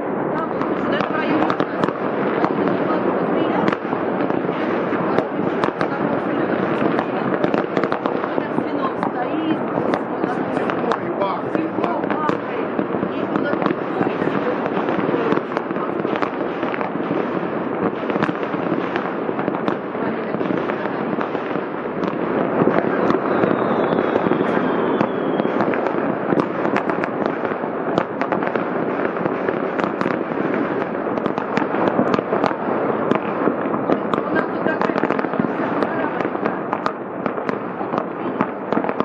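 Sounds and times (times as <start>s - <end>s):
distant fireworks bangs and cracks: 0.0s - 39.0s
faint high firework whistle: 22.9s - 25.9s.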